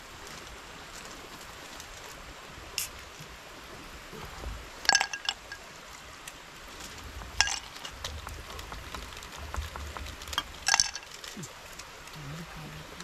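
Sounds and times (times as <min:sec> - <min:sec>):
steady background hiss: 0:00.0 - 0:13.0
hard objects clinking together: 0:04.9 - 0:05.6, 0:07.2 - 0:11.5.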